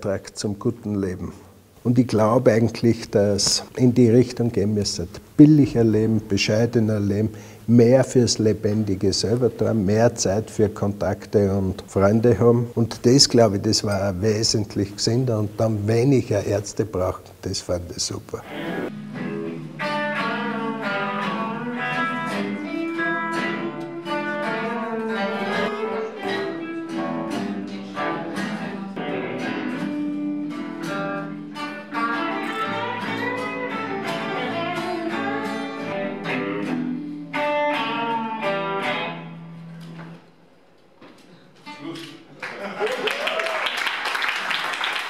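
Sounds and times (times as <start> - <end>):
acoustic guitar ensemble playing: 18.4 - 42.4.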